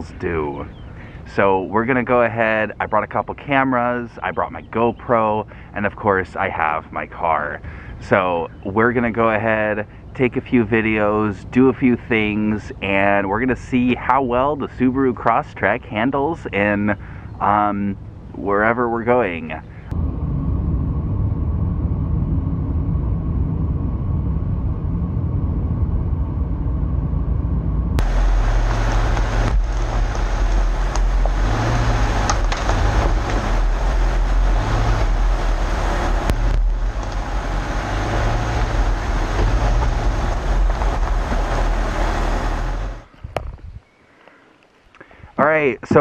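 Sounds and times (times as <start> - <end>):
road and tyre noise in car cabin: 19.1 - 43.1
tyres on gravel: 28.0 - 43.6.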